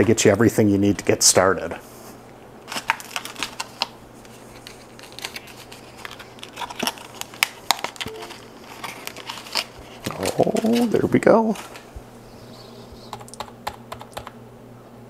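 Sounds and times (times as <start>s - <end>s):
low steady hum: 0.0s - 15.0s
keyboard and mouse clicks: 13.1s - 14.4s.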